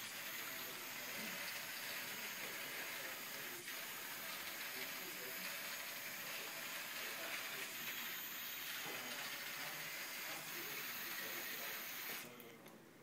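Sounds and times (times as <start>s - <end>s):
room noise hiss: 0.0s - 13.0s.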